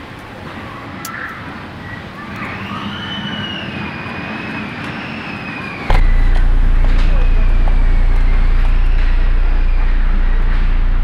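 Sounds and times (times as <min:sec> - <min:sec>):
distant siren wailing: 0:00.7 - 0:11.0
loud low hum: 0:05.9 - 0:11.0.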